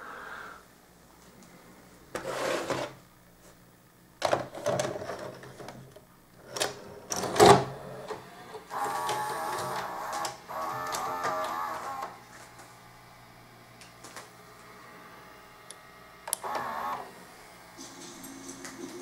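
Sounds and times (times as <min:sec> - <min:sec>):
tape deck mechanism whirring: 0:06.4 - 0:12.7, 0:13.7 - 0:18.6.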